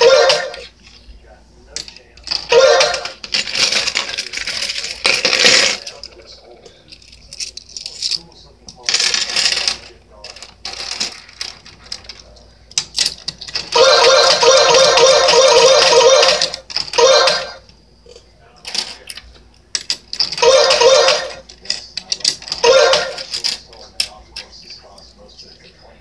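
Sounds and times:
coins clattering rapidly: 1.8 - 5.9, 8.9 - 12.2, 12.8 - 17.6, 19.8 - 23.7
coins clinking: 1.8 - 6.0, 6.9 - 12.2, 12.8 - 17.6, 18.7 - 24.5.

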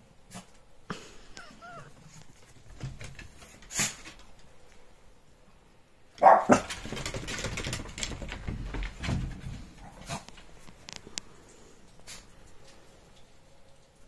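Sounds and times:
dog barking: 6.2 - 6.7
dog claws clicking on wood: 6.5 - 11.0.

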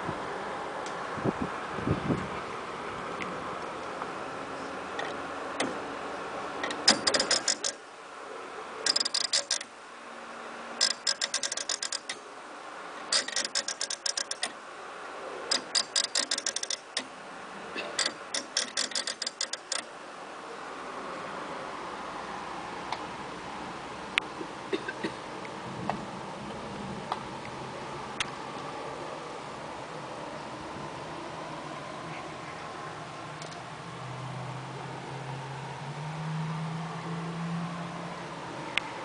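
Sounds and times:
clock mechanism ratchet clicks: 6.6 - 7.8, 8.8 - 9.7, 10.8 - 12.2, 13.1 - 14.6, 15.5 - 17.1, 17.9 - 19.9.

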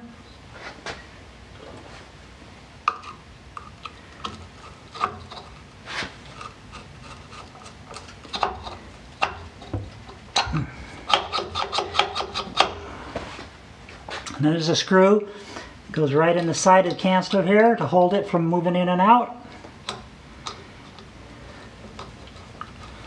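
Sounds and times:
screwdriver clicking and scraping: 6.2 - 12.8.

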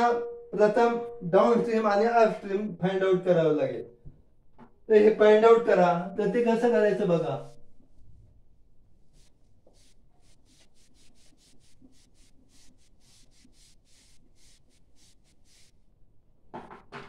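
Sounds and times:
duster wiping whiteboard: 8.8 - 15.9.

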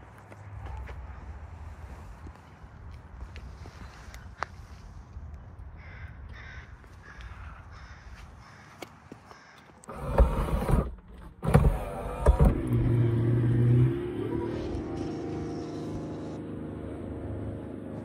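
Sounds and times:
electric motor humming: 9.9 - 16.4.

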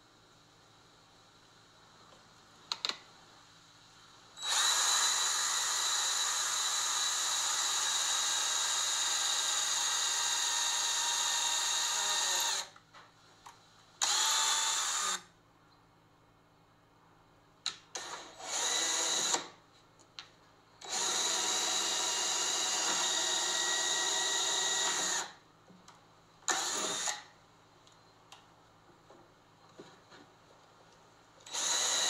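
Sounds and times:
cordless drill boring wood: 4.4 - 12.8, 14.0 - 15.2, 18.0 - 19.5, 20.8 - 25.4, 26.5 - 27.3, 31.5 - 32.0.

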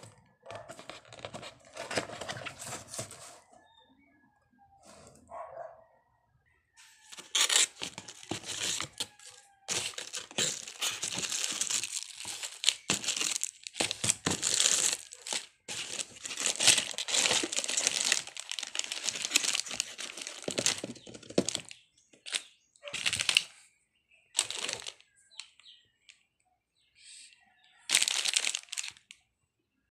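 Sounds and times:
plastic bags crinkling: 7.1 - 23.5, 24.4 - 25.5, 27.9 - 29.2.

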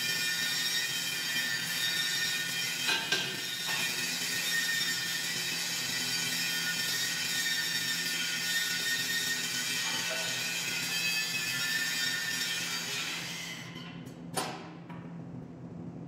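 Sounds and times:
workshop machinery whine and hum: 0.0 - 16.0
steel knocking: 9.8 - 10.5.

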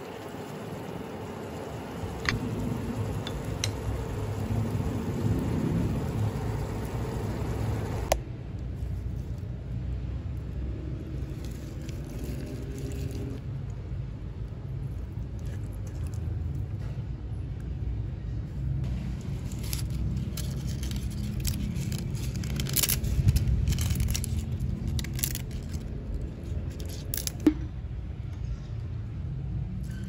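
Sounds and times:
low steady rumble: 0.0 - 30.0.

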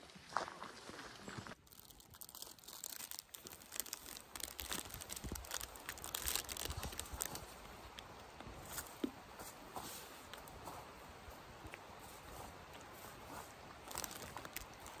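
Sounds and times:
plastic wrapper crinkling: 1.6 - 8.0, 13.8 - 15.0.

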